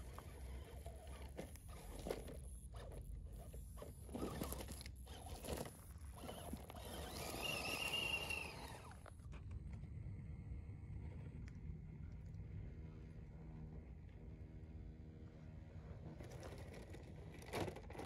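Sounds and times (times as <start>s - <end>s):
electric motor whine: 0.0s - 9.2s.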